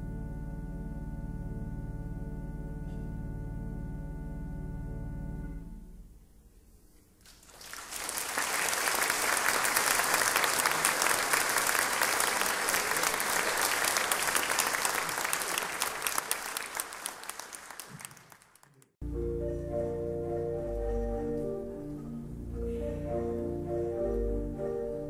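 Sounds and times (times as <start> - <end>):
audience clapping: 7.2 - 19.0.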